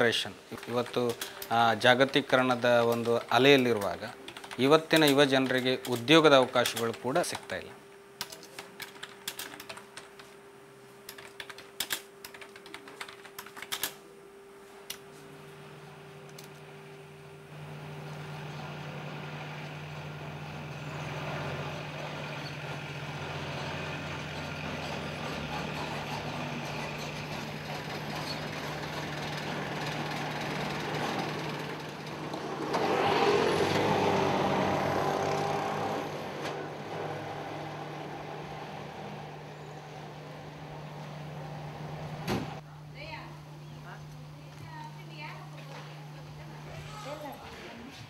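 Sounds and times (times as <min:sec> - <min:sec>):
rush of vehicle noise: 0:29.4 - 0:42.6.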